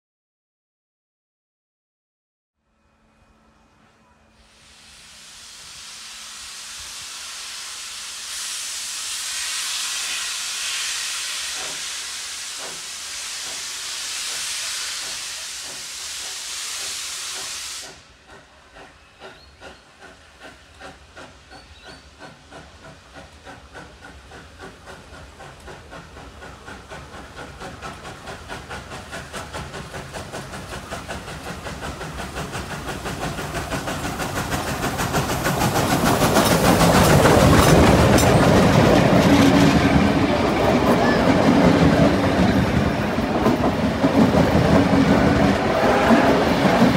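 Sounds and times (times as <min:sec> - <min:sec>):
steam hissing: 0:04.3 - 0:46.9
steam locomotive chuffing: 0:04.4 - 0:46.9.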